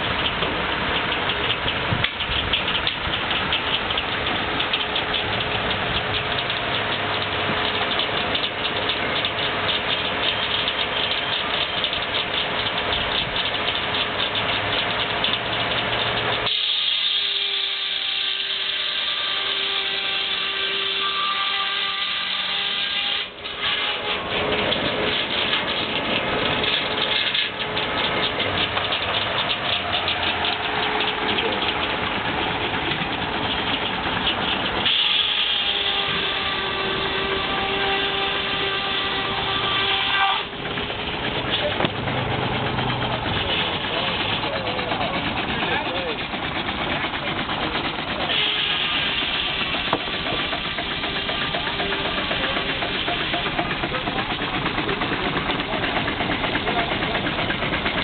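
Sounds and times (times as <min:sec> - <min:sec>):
steam engine running: 0:00.0 - 0:58.0
saw cutting log hiss: 0:16.3 - 0:24.5, 0:34.7 - 0:40.5.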